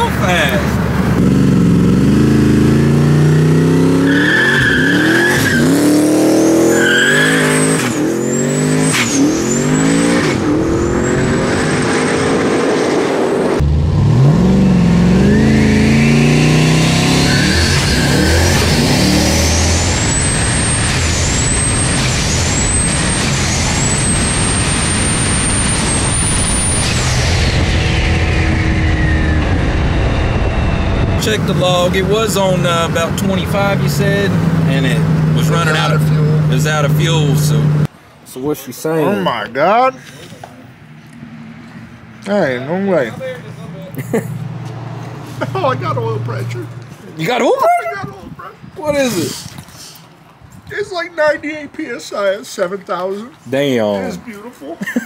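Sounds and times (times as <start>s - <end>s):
truck engine accelerating: 0.0s - 37.9s, 40.7s - 47.4s
tires squealing: 2.0s - 37.9s, 40.9s - 50.2s
turbo whine: 4.6s - 37.9s.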